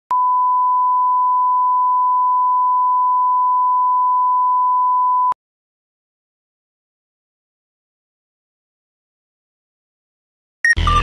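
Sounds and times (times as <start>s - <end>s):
steady pure tone beep: 0.1s - 5.4s.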